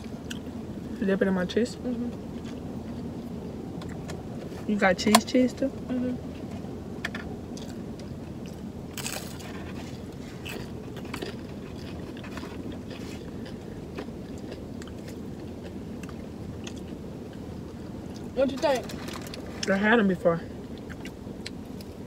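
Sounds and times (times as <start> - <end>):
low steady hum: 0.0 - 22.0
crunchy bite and chewing: 7.5 - 17.4.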